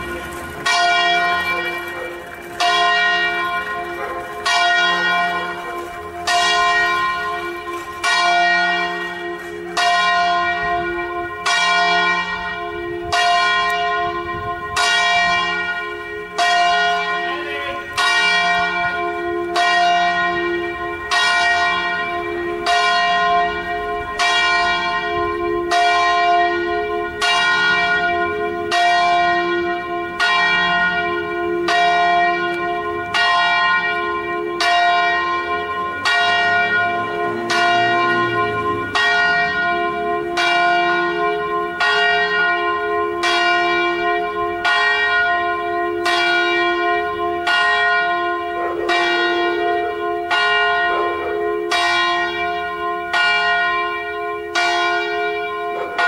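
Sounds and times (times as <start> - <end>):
church bells ringing: 0.0 - 56.0.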